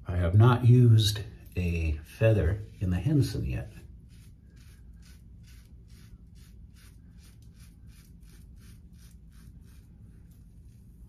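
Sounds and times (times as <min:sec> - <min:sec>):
razor scraping beard stubble: 0:02.1 - 0:11.0.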